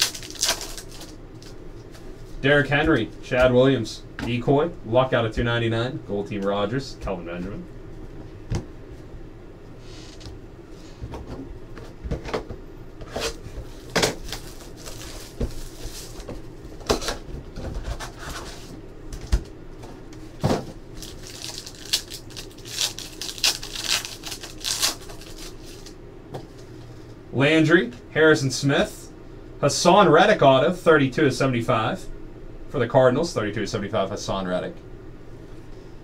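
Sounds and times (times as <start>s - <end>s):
foil pack crinkling: 0.0s - 1.6s, 13.7s - 16.3s, 21.0s - 26.0s.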